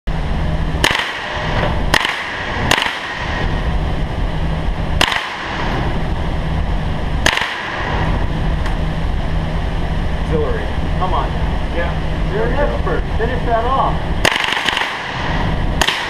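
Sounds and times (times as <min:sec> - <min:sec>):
steady low hum: 0:00.1 - 0:16.0
rifle shots: 0:00.8 - 0:03.5, 0:05.0 - 0:05.8, 0:07.2 - 0:08.2, 0:14.2 - 0:16.0.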